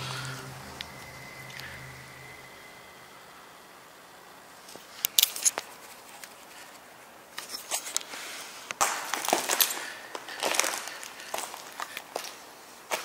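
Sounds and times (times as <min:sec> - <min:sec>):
footsteps scuffing: 0:08.8 - 0:13.0.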